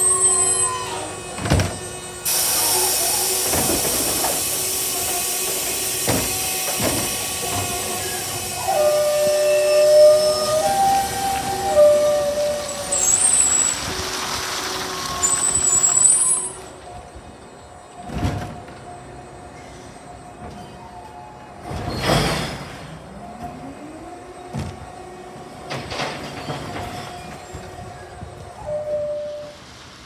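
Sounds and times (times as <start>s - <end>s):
hiss: 2.2s - 16.5s.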